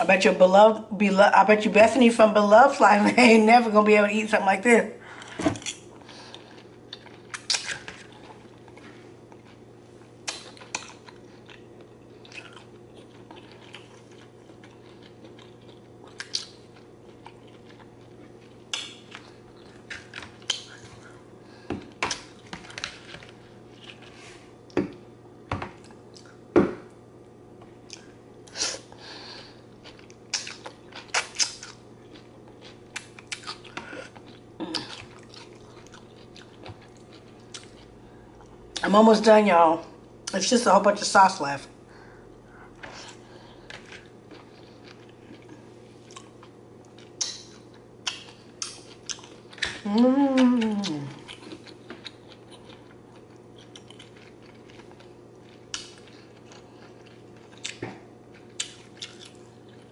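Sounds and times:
wet chewing mouth sounds: 29.8 - 38.8, 42.8 - 59.9.

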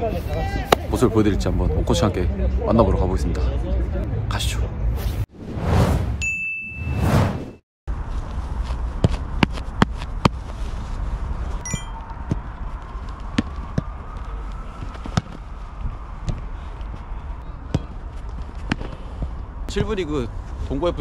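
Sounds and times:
footballs being kicked: 16.2 - 16.5.

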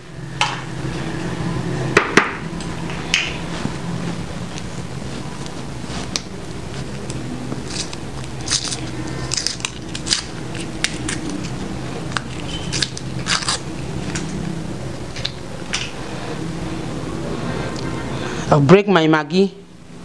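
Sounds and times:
wrappers crinkling: 3.6 - 14.4.

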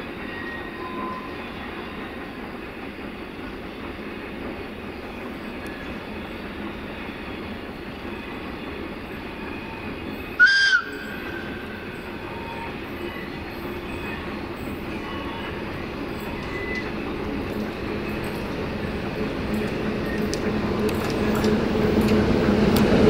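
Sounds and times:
approaching freight train: 0.0 - 23.0
short high locomotive horn toot: 10.4 - 11.2.

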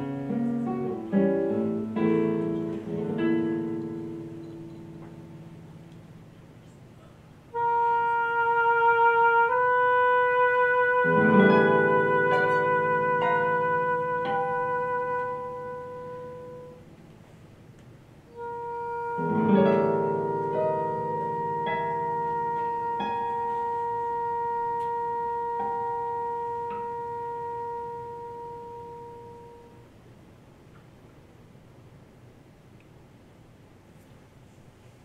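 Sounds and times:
plucked guitar chords: 0.0 - 6.0, 11.0 - 16.9, 19.0 - 29.8
oboe playing long notes: 7.5 - 16.9, 18.3 - 29.9.

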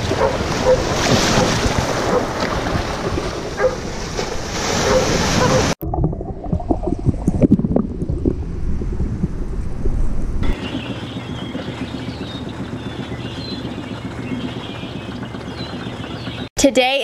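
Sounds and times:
surf splashing: 0.0 - 5.8
muffled underwater paddling: 0.0 - 16.5
wind buffeting microphone: 0.0 - 16.5.

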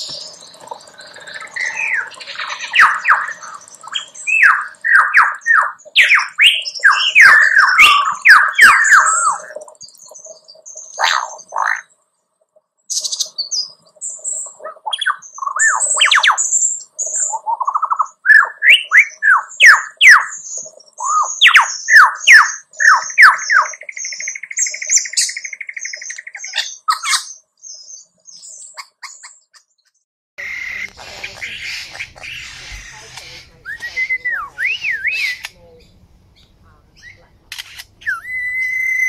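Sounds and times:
lyrebird singing: 0.0 - 12.0, 12.9 - 29.8, 30.4 - 39.0
steady hiss: 30.4 - 38.0.

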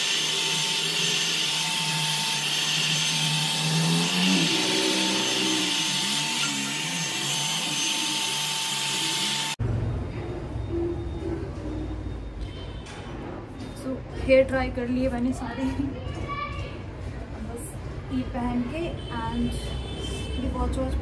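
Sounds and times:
hair dryer blowing: 0.0 - 9.6.

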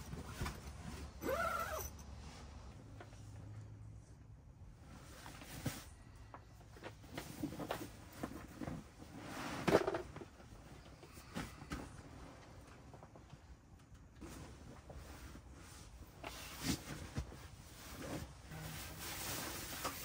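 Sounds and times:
sleeping pad fabric rustling: 14.2 - 20.0.

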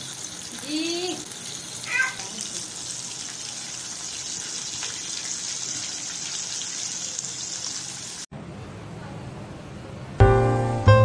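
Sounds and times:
chicken deep-frying in oil: 0.0 - 8.3.

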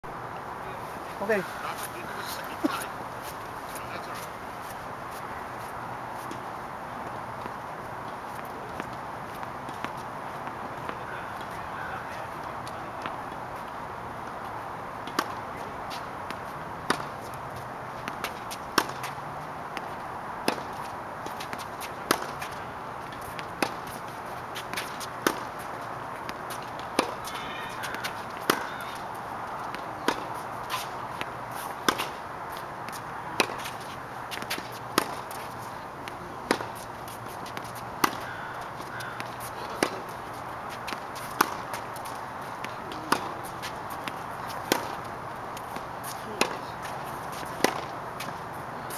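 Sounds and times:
tennis ball bouncing: 7.0 - 11.6, 15.0 - 48.9
tennis racket hitting ball: 15.0 - 17.2, 18.0 - 19.2, 19.8 - 25.6, 26.2 - 48.9.

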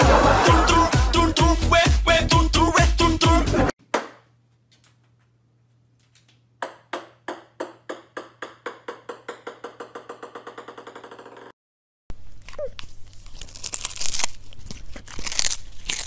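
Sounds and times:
music: 0.0 - 3.7
ball bouncing on wooden floor: 6.6 - 11.5.

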